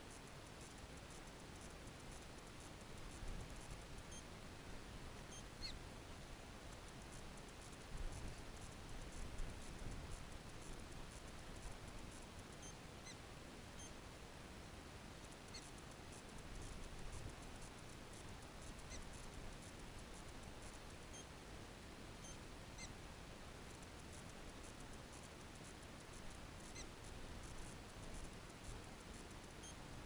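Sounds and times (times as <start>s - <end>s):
prairie dog chirps: 5.3s - 5.8s, 26.6s - 27.0s.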